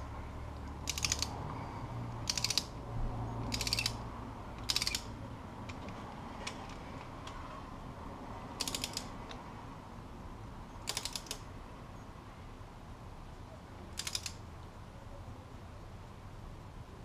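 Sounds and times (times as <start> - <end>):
torque wrench ratchet clicking: 0.8 - 1.3, 2.2 - 2.8, 3.4 - 4.0, 4.6 - 5.1, 8.6 - 9.1, 10.9 - 11.4, 14.0 - 14.4.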